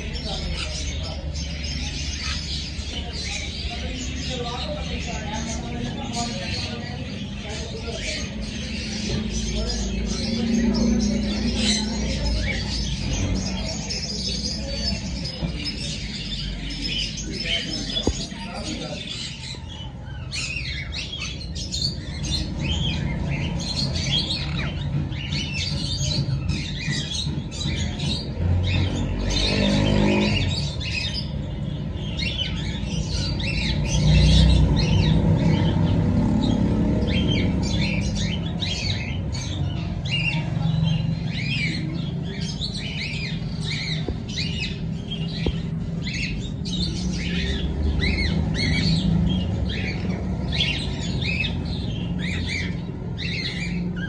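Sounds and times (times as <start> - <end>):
parakeets chirping and squawking: 0.0 - 54.0.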